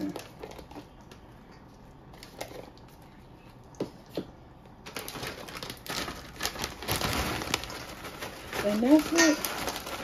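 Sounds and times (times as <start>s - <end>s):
plastic bag crinkling: 4.8s - 10.0s.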